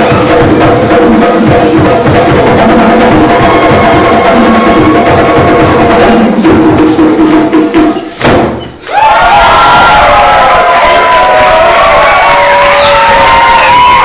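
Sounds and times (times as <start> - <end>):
live band with percussion: 0.0 - 8.9
crowd cheering and whooping: 3.1 - 5.9, 8.8 - 14.0.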